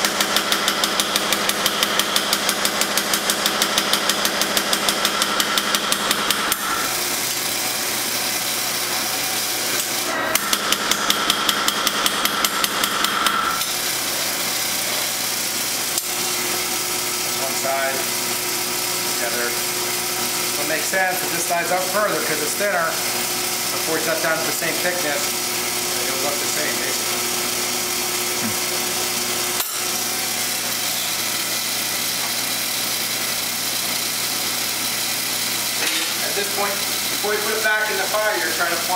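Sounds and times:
power hammer pounding steel: 0.0s - 7.0s, 9.8s - 13.7s.

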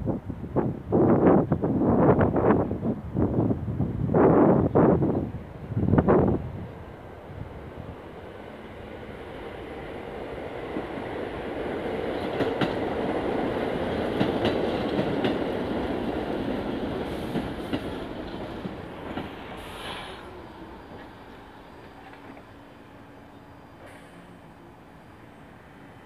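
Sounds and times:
subway train rolling: 0.0s - 26.0s
wheels clicking over rail joints: 12.1s - 19.4s
train brake squeal: 19.4s - 26.0s.

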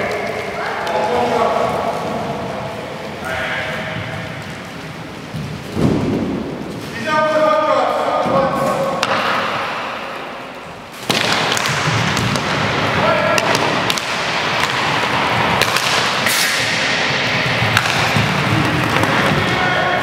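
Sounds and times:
sticks and ball clacking on floor: 10.5s - 19.6s
skating din: 11.0s - 20.0s
players shouting: 12.2s - 20.0s.

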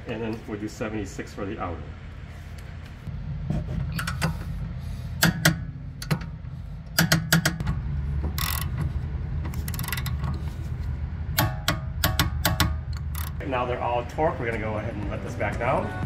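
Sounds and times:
steady low hum: 0.0s - 16.0s
ratchet rasping: 8.3s - 8.9s, 9.5s - 10.6s, 11.4s - 13.4s
torque wrench clicks: 8.4s - 8.8s, 11.4s - 13.4s.

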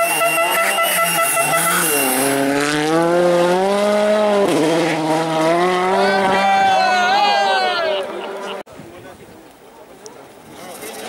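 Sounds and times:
rally car engine revving: 0.0s - 6.7s
steady horn tone: 0.0s - 6.7s.

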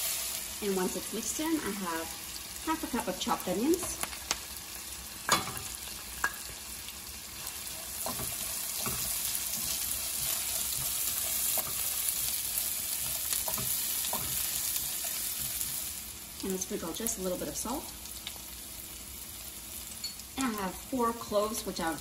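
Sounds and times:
onions sizzling in a pan: 0.0s - 22.0s
spatula stirring in a pan: 5.3s - 16.4s.

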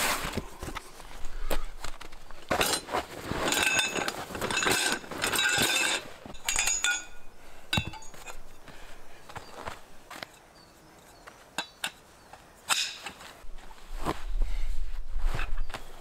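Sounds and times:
metal poles clinking and rattling: 1.8s - 13.4s.

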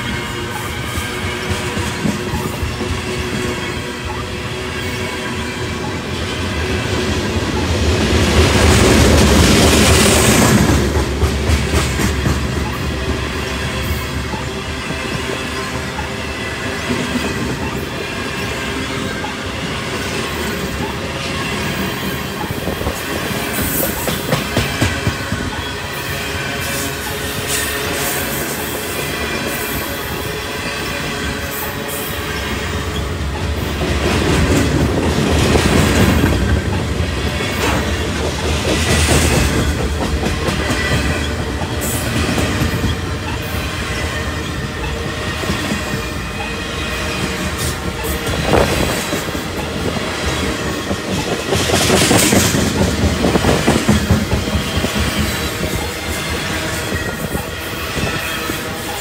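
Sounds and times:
train wheels rumbling on rails: 0.0s - 59.0s
wheels clacking over rail joints: 32.6s - 59.0s.

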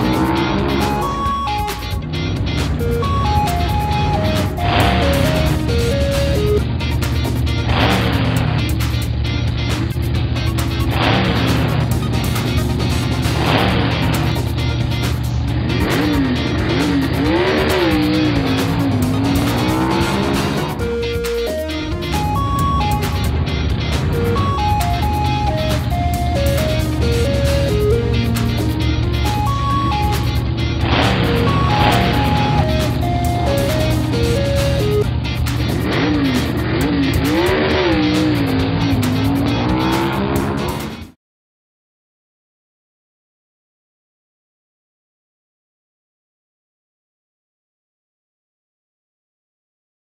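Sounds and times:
background music: 0.0s - 41.2s
cartoon truck engine revving: 0.0s - 41.2s.

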